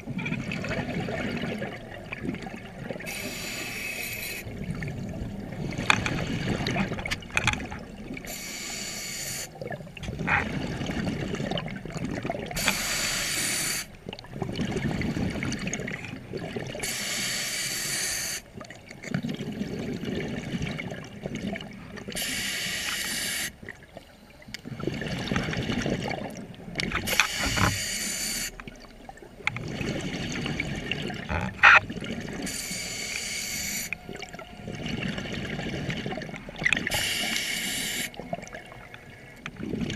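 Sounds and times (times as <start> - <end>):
hissing regulator inhale: 3.1 - 4.5, 8.3 - 9.6, 12.6 - 13.9, 16.8 - 18.5, 22.2 - 23.6, 27.1 - 28.6, 32.4 - 34.1, 36.9 - 38.2.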